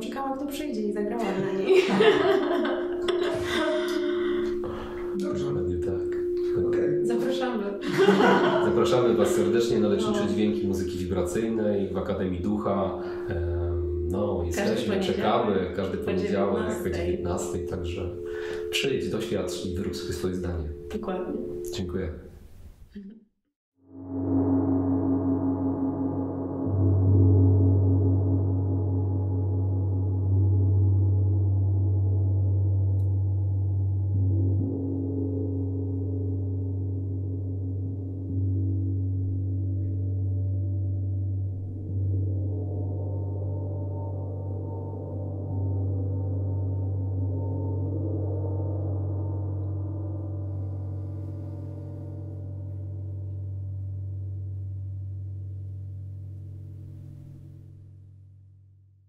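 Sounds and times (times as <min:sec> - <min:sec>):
gongs ringing: 0:00.0 - 0:22.2
gongs droning: 0:00.0 - 0:22.3, 0:23.9 - 0:58.0.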